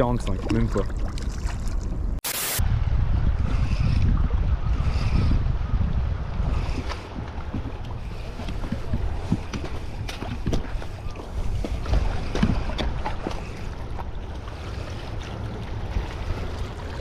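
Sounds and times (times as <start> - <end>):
wind buffeting microphone: 2.0 - 17.0
water lapping on rocks: 6.5 - 17.0.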